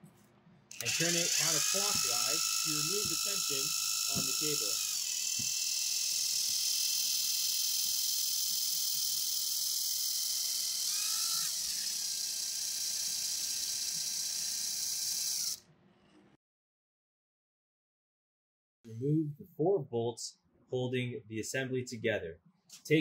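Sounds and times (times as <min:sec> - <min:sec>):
cordless impact driver whining: 0:00.7 - 0:15.6.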